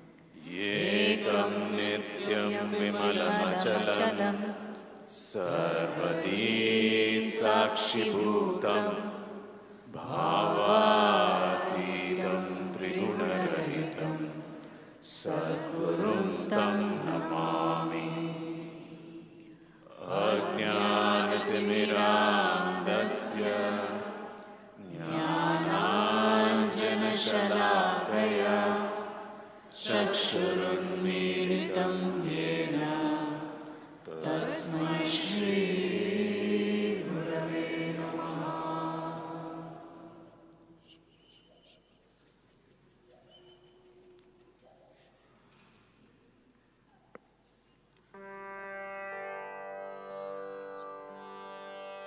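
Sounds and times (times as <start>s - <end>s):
person chanting: 0.4s - 9.3s, 9.9s - 14.4s, 19.9s - 42.0s.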